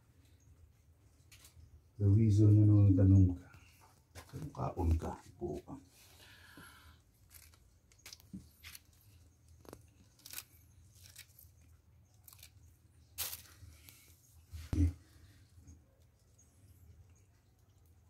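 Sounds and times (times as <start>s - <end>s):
mushrooms crackling and snapping: 7.1s - 14.1s.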